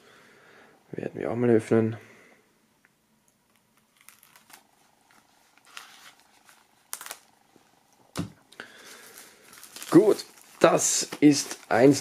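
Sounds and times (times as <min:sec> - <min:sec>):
plastic crackles and clicks: 0:03.3 - 0:07.4.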